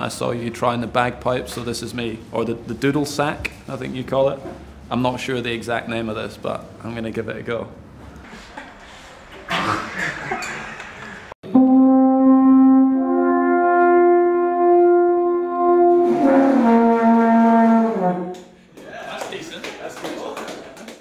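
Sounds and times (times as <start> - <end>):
alphorn long held notes: 11.5 - 18.4.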